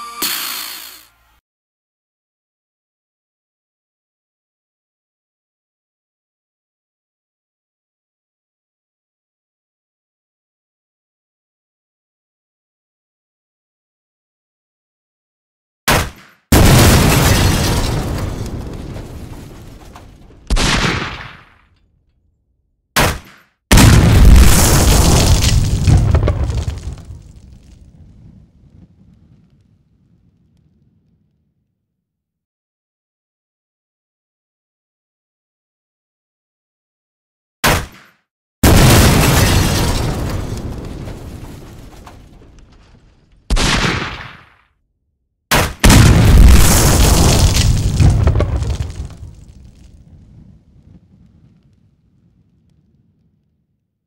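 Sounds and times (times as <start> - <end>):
gunfire: 15.9 - 18.6, 20.0 - 21.7, 23.0 - 26.5, 37.6 - 39.6, 43.5 - 44.6, 45.5 - 49.1
explosion blasts: 16.5 - 21.5, 23.7 - 31.3, 38.6 - 44.3, 45.5 - 53.4.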